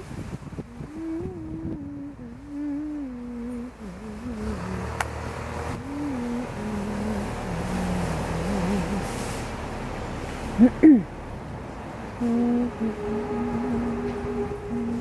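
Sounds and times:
low engine rumble: 0:00.0 - 0:15.0
person humming: 0:00.6 - 0:09.4, 0:12.2 - 0:15.0.

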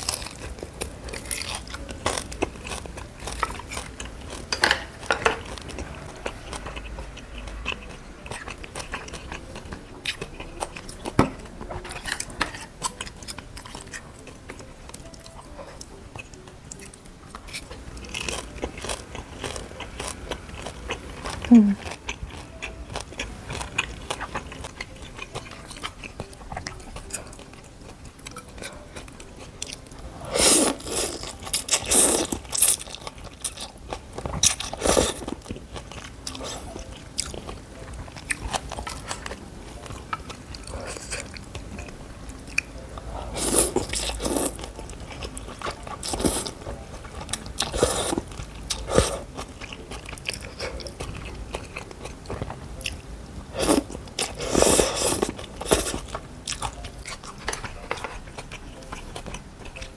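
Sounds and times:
person chewing: 0:00.0 - 0:59.9
sharp mouth noises: 0:21.2 - 0:27.3.

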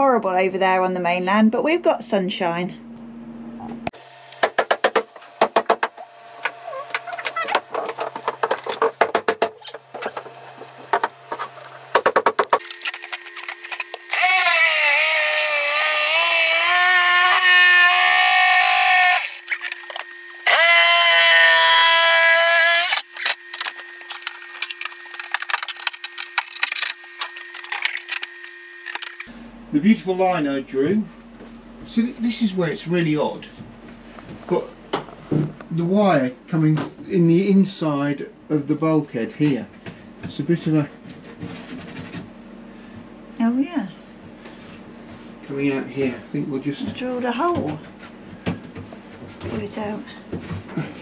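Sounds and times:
handheld power tool running: 0:12.0 - 0:29.3.

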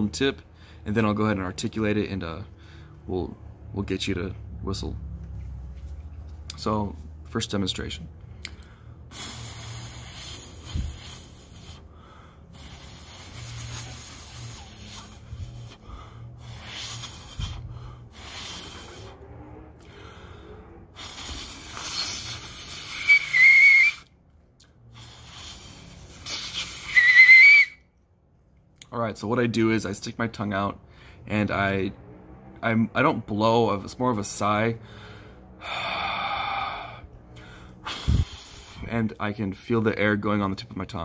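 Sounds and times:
man breathing out hissing sighs: 0:08.6 - 0:19.2, 0:34.8 - 0:38.9
short high whistles: 0:21.0 - 0:24.1, 0:25.0 - 0:27.9.

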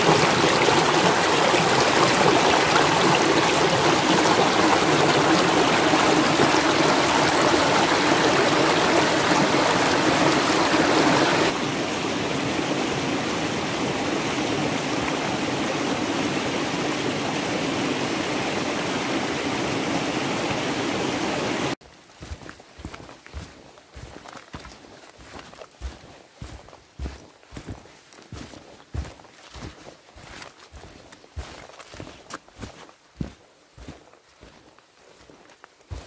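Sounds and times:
water rushing in a stream: 0:00.0 - 0:27.7.

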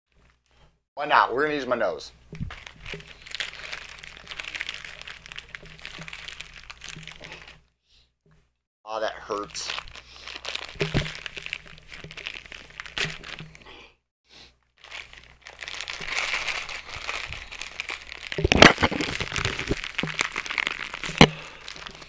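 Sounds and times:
plastic bag crinkling: 0:02.3 - 0:07.6, 0:09.3 - 0:13.7, 0:14.8 - 0:22.0
sharp plastic cracks: 0:10.5 - 0:13.6, 0:15.6 - 0:22.0.

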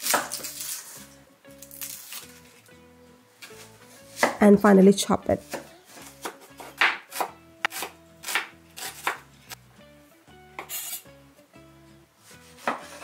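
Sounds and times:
cleaver chopping on wooden board: 0:05.5 - 0:09.2.

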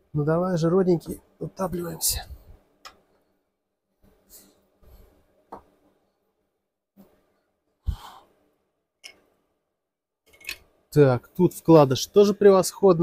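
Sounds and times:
person exhaling: 0:07.8 - 0:08.3.

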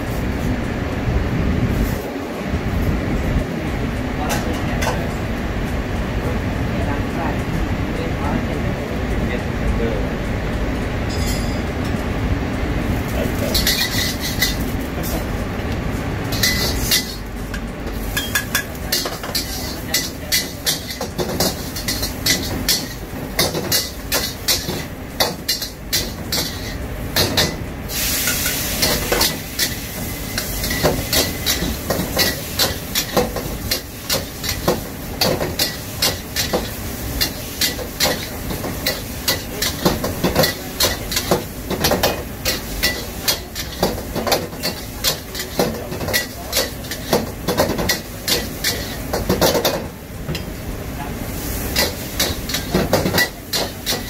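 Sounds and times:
food sizzling: 0:12.8 - 0:54.0
metal ladle scraping a wok: 0:13.5 - 0:14.7, 0:16.3 - 0:17.3.

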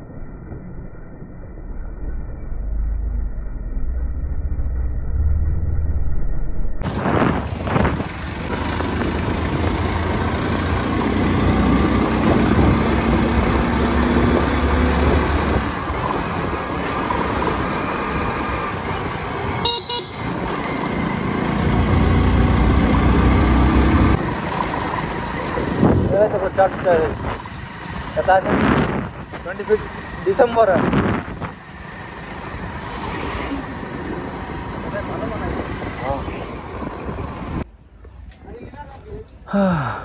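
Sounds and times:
surrounding traffic: 0:00.0 - 0:40.0
wind on microphone: 0:06.8 - 0:09.6, 0:11.5 - 0:19.5, 0:25.6 - 0:27.7, 0:28.3 - 0:29.5, 0:30.6 - 0:31.7
motorcycle engine running: 0:06.9 - 0:37.6.

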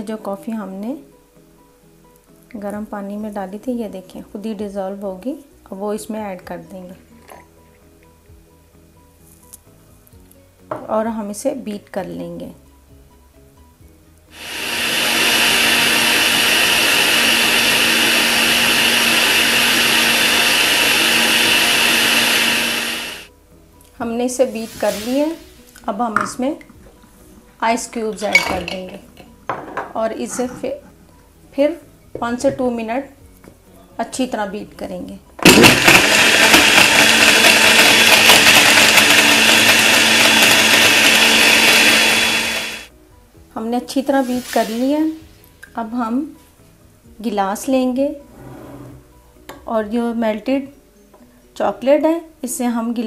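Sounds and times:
blender running: 0:14.4 - 0:23.3, 0:35.4 - 0:42.9.

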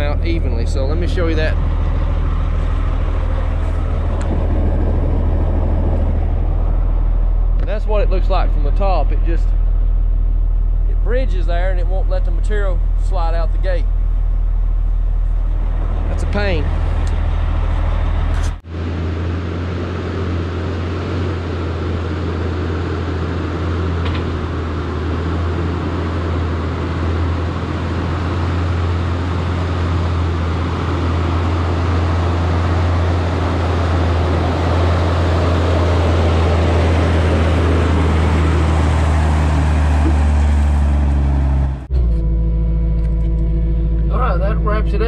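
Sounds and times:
even tones: 0:00.0 - 0:18.7, 0:19.5 - 0:45.0
truck engine running: 0:00.0 - 0:45.0.

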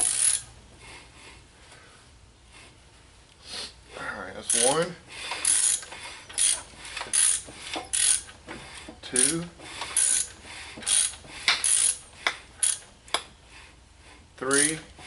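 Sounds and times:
ratchet wrench clicking: 0:00.0 - 0:00.5, 0:04.4 - 0:08.3, 0:09.1 - 0:12.9.

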